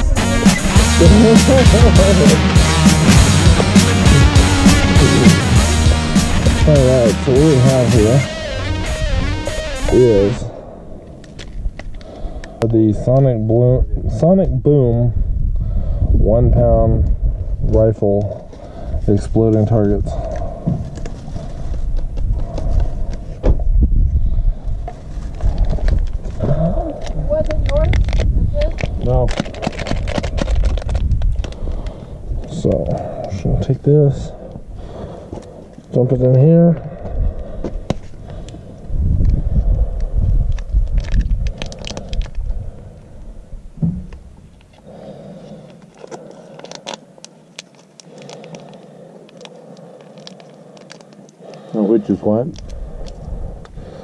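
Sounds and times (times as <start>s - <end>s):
low rumble and hum: 0.0s - 12.7s
plastic clicks and scrapes: 27.0s - 31.6s.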